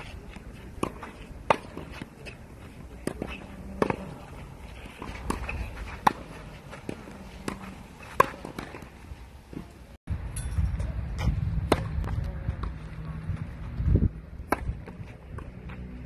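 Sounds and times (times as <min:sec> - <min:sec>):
racket hitting tennis ball: 0:00.0 - 0:09.7, 0:11.2 - 0:12.7, 0:14.4 - 0:15.8.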